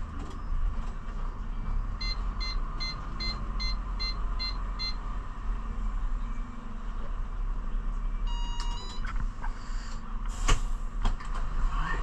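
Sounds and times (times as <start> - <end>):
reversing alarm beeping: 2.0 - 5.0, 8.3 - 9.0.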